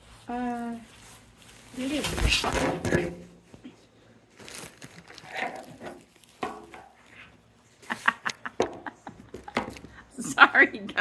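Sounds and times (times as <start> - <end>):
fabric tent rustling: 0.0 - 2.7.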